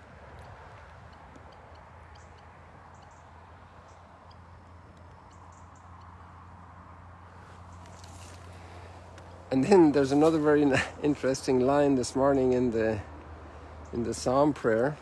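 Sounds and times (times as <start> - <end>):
small birds chirping: 1.1 - 9.9.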